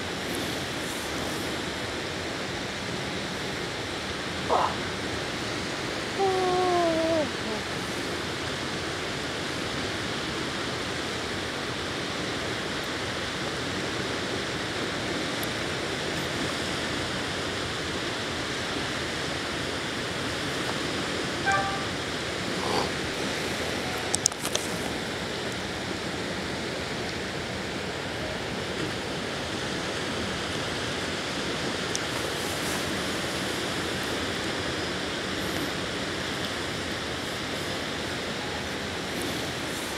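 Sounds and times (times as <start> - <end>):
river water rushing: 0.0 - 39.9
wind: 0.0 - 39.9
brief high note: 21.4 - 22.1.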